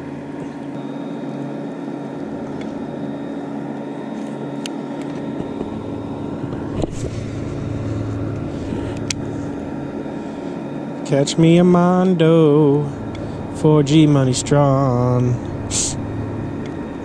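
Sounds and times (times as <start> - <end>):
boat motor running: 5.1 - 17.0.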